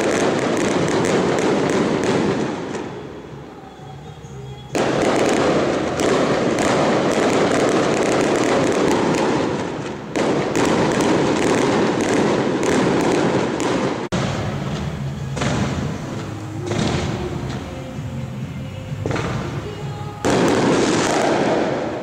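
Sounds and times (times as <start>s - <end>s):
fireworks crackling and banging: 0.0s - 22.0s.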